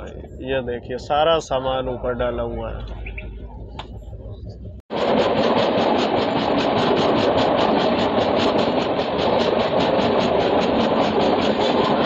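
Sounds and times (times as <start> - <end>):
train wheels rushing on rails: 4.9 - 12.0.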